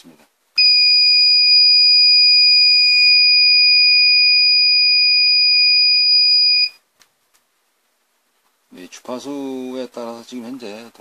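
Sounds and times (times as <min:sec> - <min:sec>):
high-pitched alarm beep: 0:00.6 - 0:06.8.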